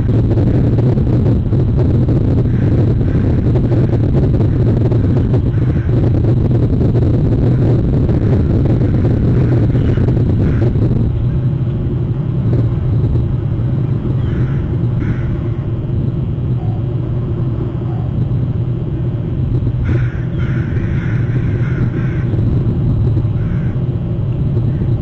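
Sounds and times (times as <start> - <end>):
low outdoor rumble: 0.0 - 25.0
faint crow caws: 5.5 - 6.0, 14.2 - 15.7, 19.8 - 22.4, 23.3 - 23.9.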